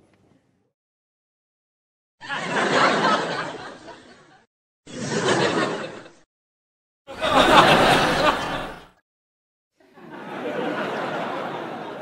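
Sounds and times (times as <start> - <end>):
group of people laughing: 2.2 - 6.3, 7.1 - 9.0, 9.8 - 12.0.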